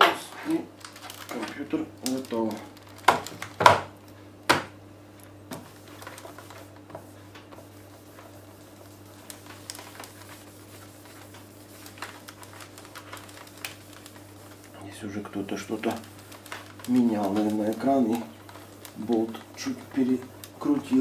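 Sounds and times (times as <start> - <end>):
cloth wiping over laptop lid: 5.6 - 18.0.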